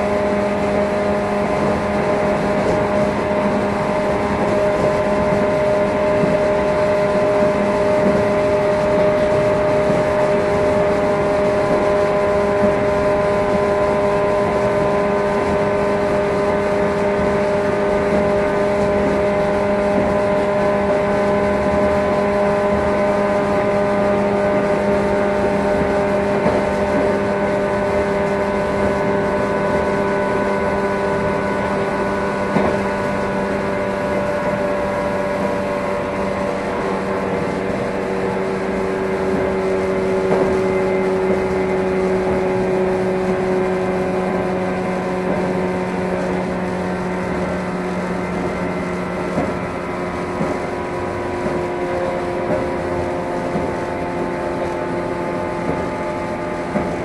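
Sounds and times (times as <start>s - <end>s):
electric train motor hum: 0.0s - 57.0s
wheels rumbling on rails: 0.0s - 57.0s.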